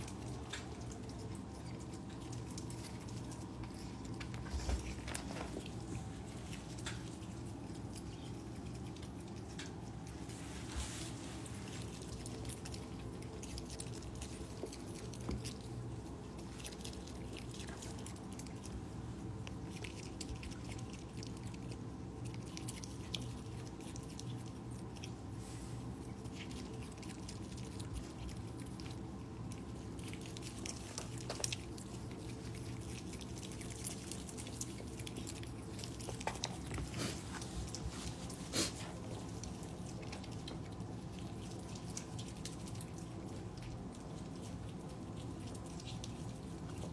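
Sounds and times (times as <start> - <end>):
otter chewing biscuits: 0.0 - 46.9
steady low hum: 0.0 - 46.9.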